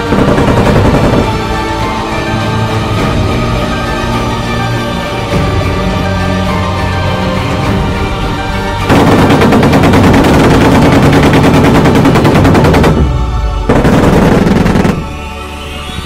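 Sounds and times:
autocannon rapid fire: 0:00.0 - 0:01.7, 0:08.8 - 0:15.2
music: 0:00.0 - 0:16.0.

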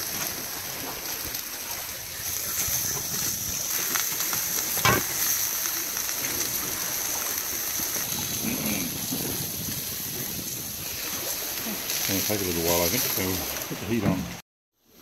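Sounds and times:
sea water rushing: 0:00.0 - 0:14.4
wind: 0:00.0 - 0:15.0.

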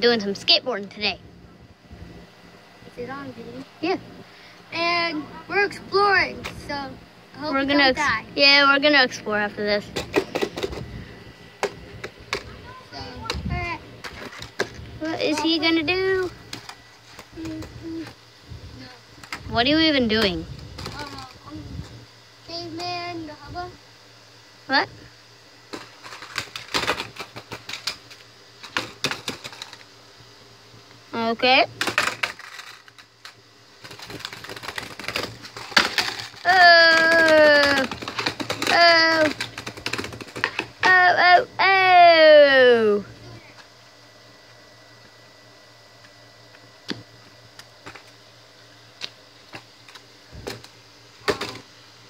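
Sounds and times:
skateboard clattering on bricks: 0:33.8 - 0:41.0.

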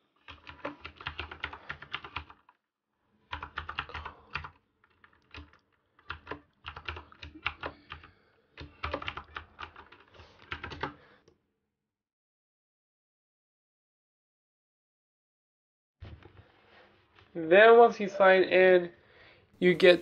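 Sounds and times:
typing on computer keyboard: 0:00.2 - 0:02.6, 0:03.3 - 0:11.0.

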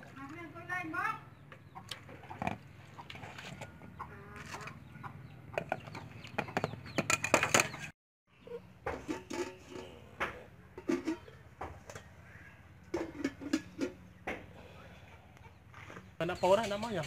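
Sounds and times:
farmyard animal calls: 0:01.2 - 0:08.8
sieve clinking against metal bowl: 0:08.9 - 0:10.0
pot lid clinking: 0:10.8 - 0:11.3.

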